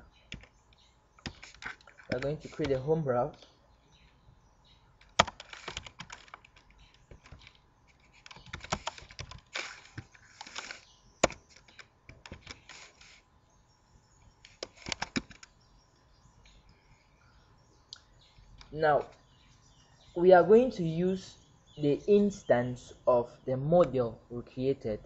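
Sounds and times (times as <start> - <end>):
computer keyboard typing: 5.1 - 7.6, 8.2 - 12.6.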